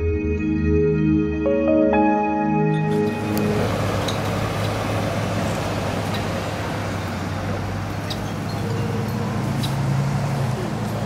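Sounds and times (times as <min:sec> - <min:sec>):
low engine hum: 0:02.8 - 0:11.0.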